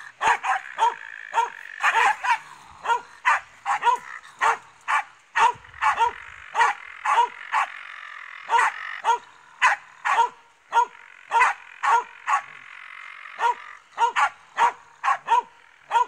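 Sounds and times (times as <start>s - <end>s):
faint continuous sound: 0.0s - 16.0s
dog barking sharply: 0.2s - 7.7s, 8.5s - 12.5s, 13.4s - 16.0s.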